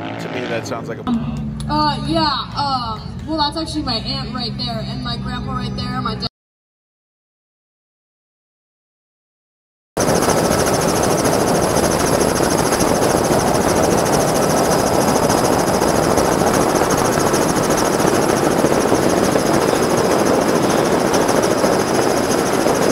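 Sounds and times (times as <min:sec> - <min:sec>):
vehicle engine running: 0:00.0 - 0:02.4, 0:10.0 - 0:22.9.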